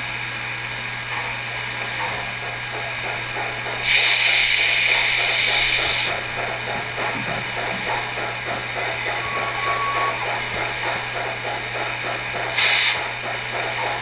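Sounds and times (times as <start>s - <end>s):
steady mechanical background: 0.0s - 14.0s
loud steam hiss: 3.8s - 6.2s, 8.2s - 13.9s.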